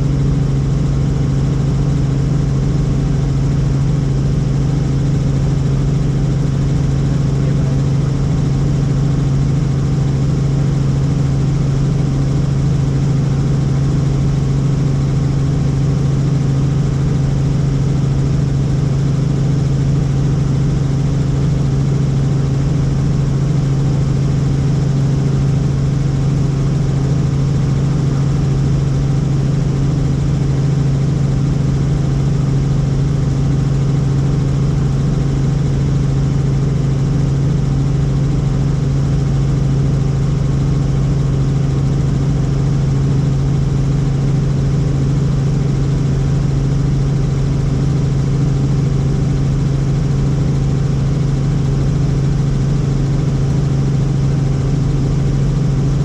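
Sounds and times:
helicopter drone: 0:00.0 - 0:56.0.

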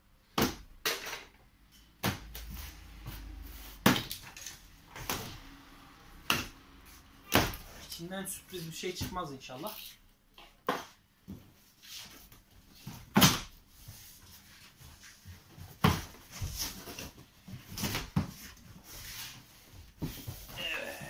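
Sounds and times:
cardboard flaps scraping and knocking: 0:11.3 - 0:20.6.

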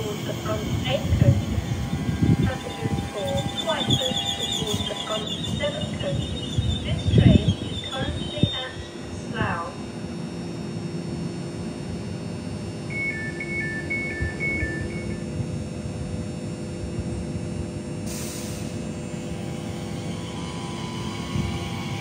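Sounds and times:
two-tone door warning beeps: 0:00.0 - 0:09.0, 0:12.9 - 0:15.4
electric train equipment hum: 0:00.0 - 0:22.0.

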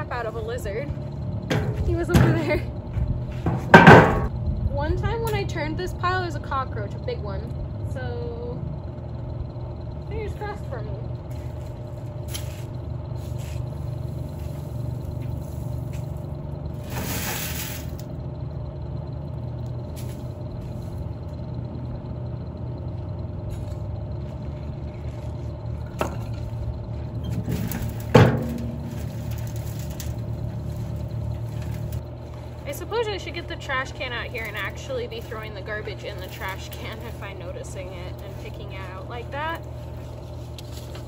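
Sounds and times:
steady low hum: 0:00.0 - 0:41.0
knocks on wooden frame: 0:03.5 - 0:04.3
dirt rattling through sifting screen: 0:11.3 - 0:18.1, 0:23.5 - 0:41.0.

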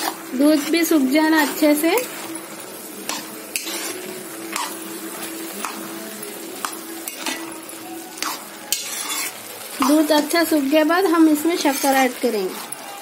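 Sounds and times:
spoon scraping a metal pan: 0:00.0 - 0:02.4, 0:03.0 - 0:04.9, 0:06.6 - 0:07.5, 0:08.2 - 0:10.4, 0:11.4 - 0:12.9
milk sizzling in a pan: 0:00.0 - 0:13.0.

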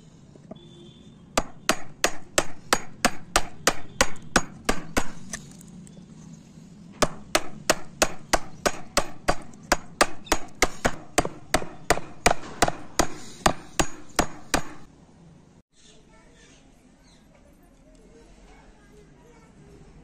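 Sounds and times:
chisel struck chopping wood: 0:01.4 - 0:05.4, 0:07.0 - 0:14.9.

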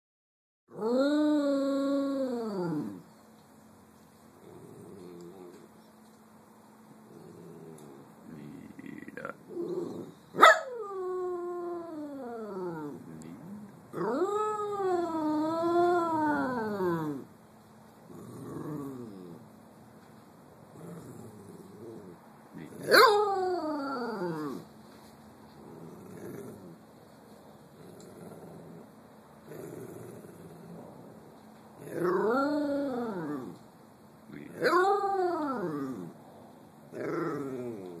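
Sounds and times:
dog howling: 0:09.6 - 0:13.0, 0:13.9 - 0:17.3, 0:22.8 - 0:24.6, 0:34.5 - 0:36.1.

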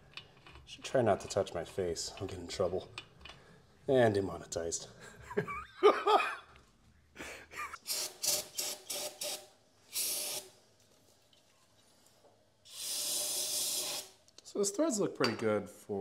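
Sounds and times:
men laughing: 0:05.0 - 0:06.5, 0:07.2 - 0:07.8
spray hissing: 0:12.7 - 0:14.2.

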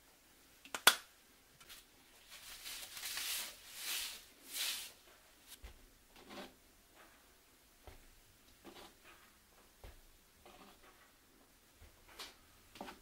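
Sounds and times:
paper towel wiping ceramic plate: 0:02.2 - 0:05.0.

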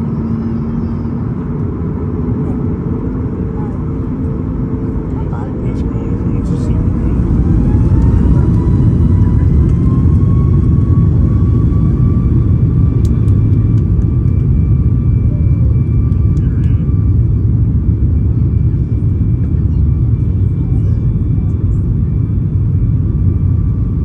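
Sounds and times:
deep steady rumble: 0:00.0 - 0:24.0
jet engines spooling up: 0:05.3 - 0:19.2.

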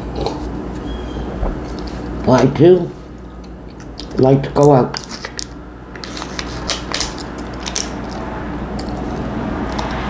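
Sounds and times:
crunchy chewing of food: 0:00.0 - 0:02.2
steady low hum: 0:00.0 - 0:10.0.

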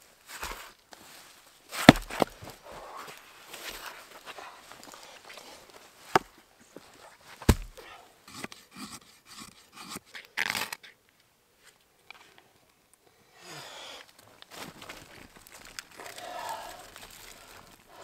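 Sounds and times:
footsteps on leaf litter and twigs: 0:01.0 - 0:05.0, 0:14.4 - 0:18.0
sharp knocks of wood: 0:07.4 - 0:07.8.

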